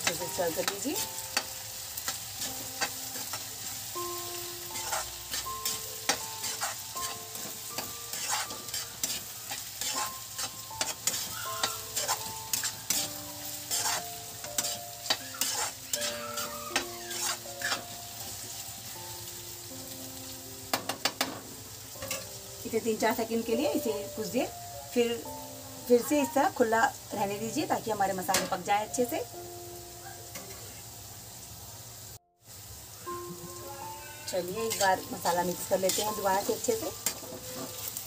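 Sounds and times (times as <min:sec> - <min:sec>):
metal spoon scraping a pan: 0:00.0 - 0:03.9, 0:04.6 - 0:18.5, 0:22.0 - 0:22.3, 0:34.3 - 0:38.0
soft melody of held notes: 0:00.0 - 0:31.4, 0:32.9 - 0:38.0
food sizzling in a pan: 0:00.0 - 0:38.0.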